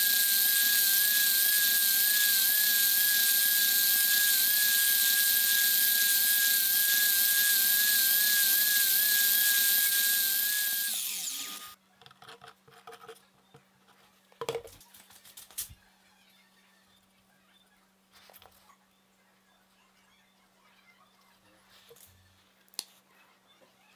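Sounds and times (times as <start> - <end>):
electric miter saw whining: 0.0 - 11.8.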